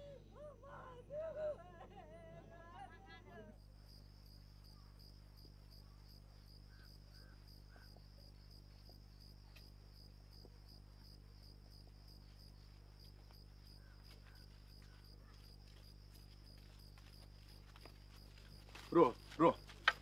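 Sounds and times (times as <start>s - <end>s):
crickets chirping: 0.0s - 20.0s.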